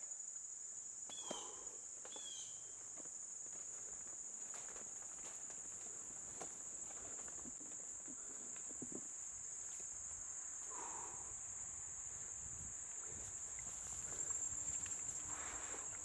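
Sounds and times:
high insect chorus: 0.0 - 16.0
faint clicks and rustles: 12.9 - 16.0.

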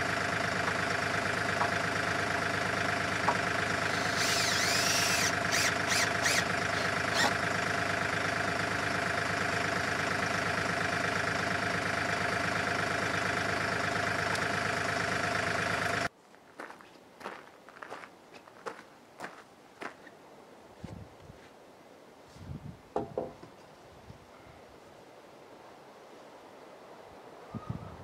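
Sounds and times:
tractor engine idling: 0.0 - 16.1
high squeaks: 3.9 - 7.4.

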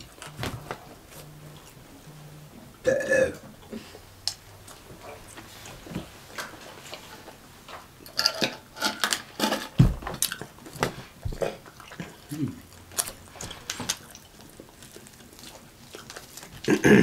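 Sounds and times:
chewing and lip-smacking: 10.2 - 16.8.

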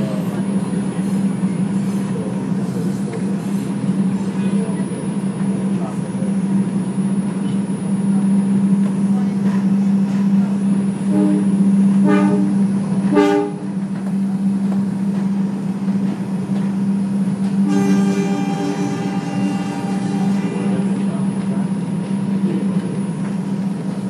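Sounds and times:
subway train rumbling: 0.0 - 24.0
train horn toots: 11.0 - 13.8, 17.4 - 21.2.

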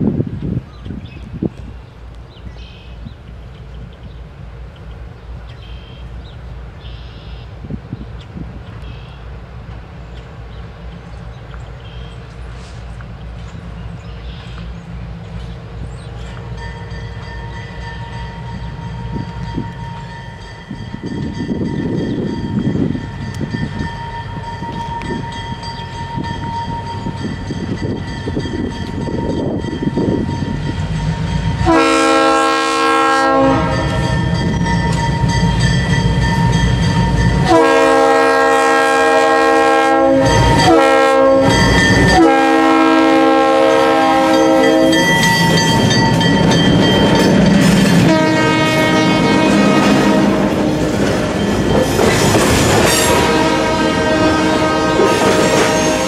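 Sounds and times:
freight train rumble: 0.0 - 56.0
locomotive air horn blasts: 31.6 - 34.6, 37.0 - 45.9, 48.0 - 51.4, 52.8 - 56.0.

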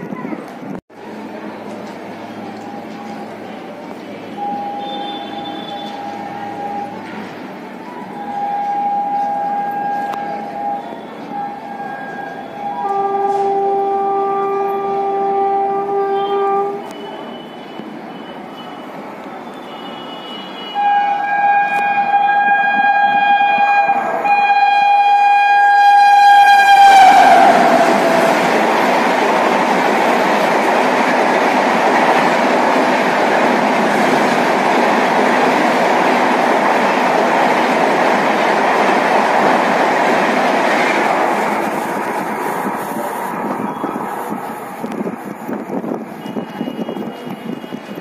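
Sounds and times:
train coaches rushing and clattering: 0.0 - 48.0
locomotive horn blasts: 4.4 - 6.6, 8.2 - 17.8, 19.7 - 28.4, 46.2 - 48.0.

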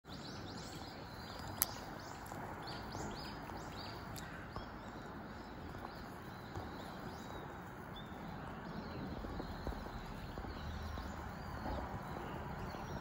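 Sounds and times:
small birds chirping: 0.1 - 13.0.

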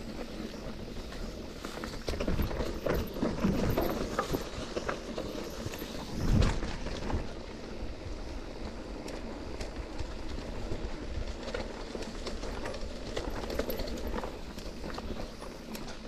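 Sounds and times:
bike rattling and knocking: 0.0 - 16.0.

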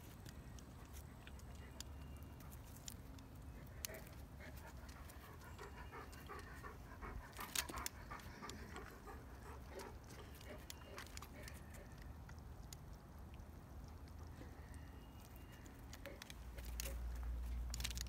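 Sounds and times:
dog panting: 3.6 - 11.9
sharp crackle: 10.1 - 18.0.

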